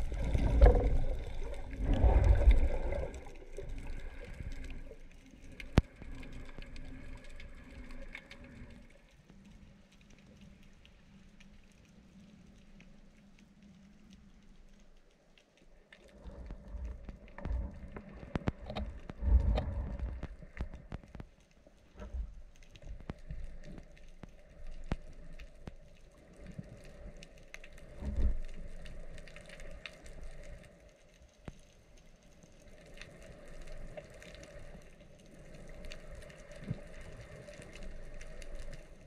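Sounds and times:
muffled underwater rushing water: 0.0s - 39.0s
faint clicks: 0.1s - 39.0s.

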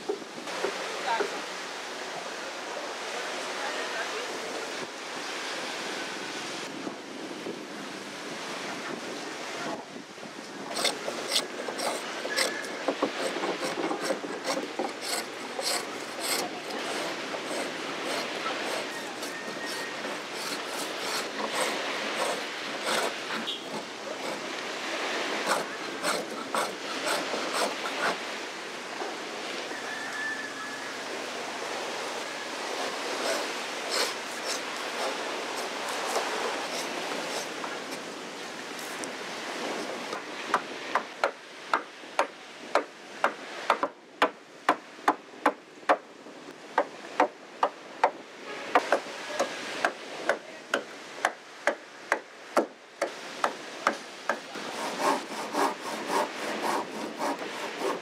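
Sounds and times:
rasping on wood: 10.7s - 24.4s, 25.4s - 28.2s, 33.2s - 37.5s, 53.8s - 58.0s.

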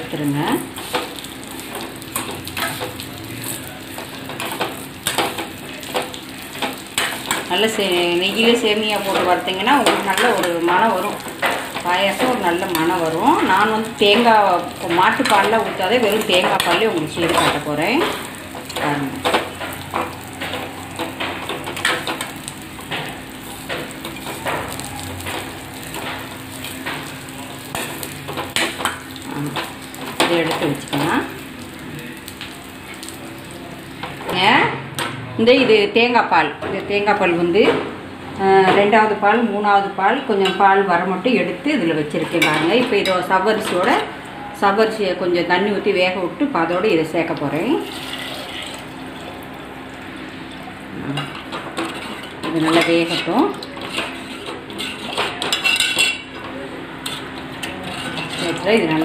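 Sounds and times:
noodles frying in a pan: 0.0s - 37.4s, 45.0s - 59.0s
metal ladle scraping a pan: 51.2s - 56.2s, 57.0s - 58.9s.

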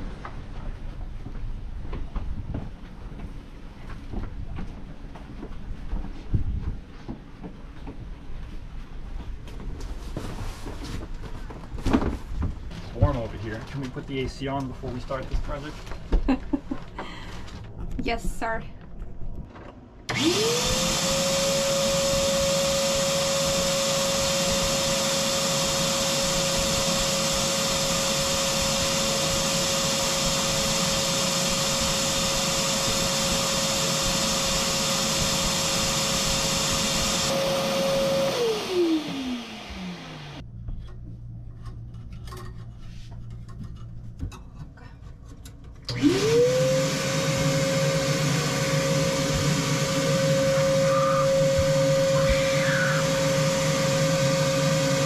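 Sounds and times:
vacuum cleaner running: 20.0s - 40.4s, 45.9s - 55.0s
vacuum cleaner winding down: 20.1s - 40.4s, 45.9s - 55.0s.

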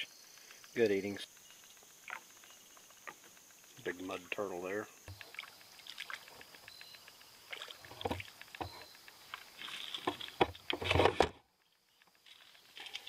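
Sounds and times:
fish splashing at water surface: 5.1s - 6.7s, 7.4s - 8.4s.

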